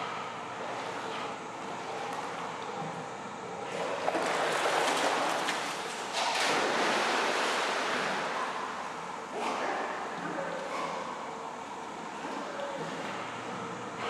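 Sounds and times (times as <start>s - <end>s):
dog splashing in pool water: 3.6s - 11.3s.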